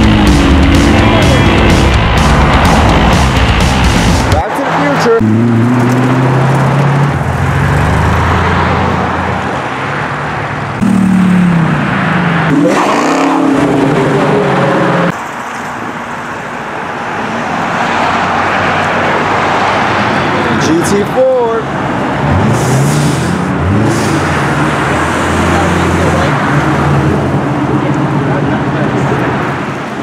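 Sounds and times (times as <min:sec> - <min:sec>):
car engine running: 0:00.0 - 0:15.2
car engine revving: 0:00.0 - 0:15.4, 0:21.6 - 0:29.8
car pulling away: 0:00.0 - 0:16.4.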